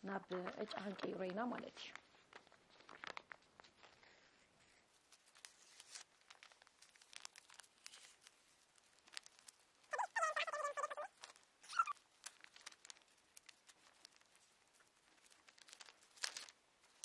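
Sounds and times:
wrapper crinkling and tearing: 0.2s - 17.0s.

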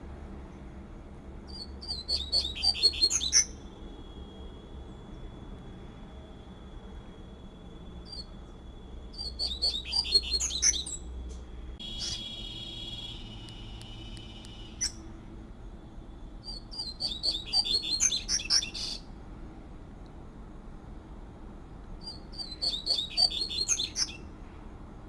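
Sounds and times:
bird singing rapid high notes: 1.5s - 3.7s, 9.2s - 11.0s, 11.8s - 15.1s, 16.4s - 19.0s, 22.0s - 24.2s.

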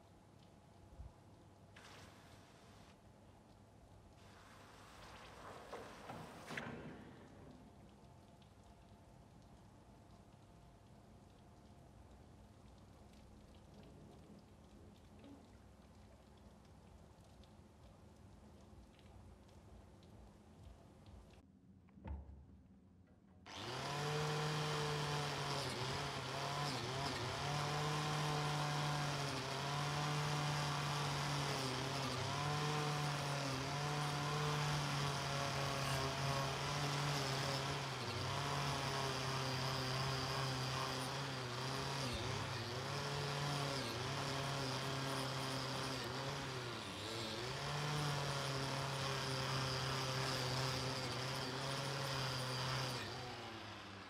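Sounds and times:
power tool motor whining: 23.5s - 54.0s.

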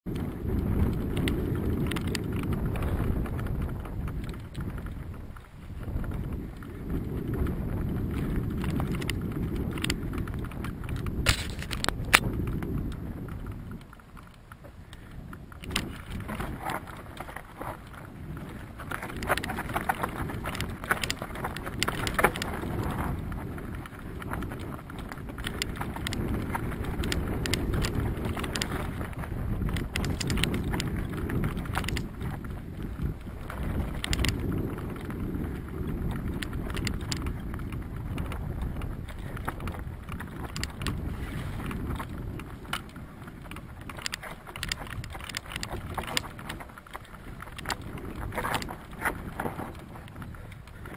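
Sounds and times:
wind on microphone: 0.0s - 50.9s
bike rattling: 0.1s - 50.9s.

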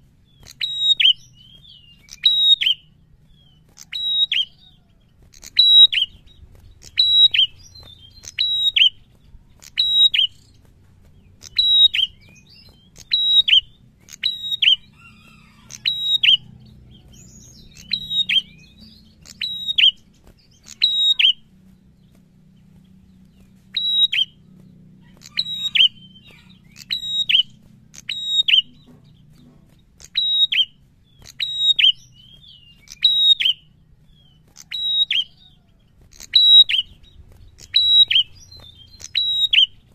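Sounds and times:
bird calling sharp high notes: 20.6s - 21.5s.

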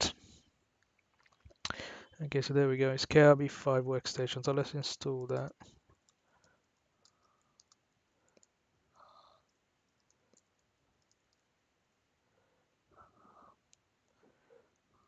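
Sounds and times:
keyboard clicks: 7.0s - 8.6s.

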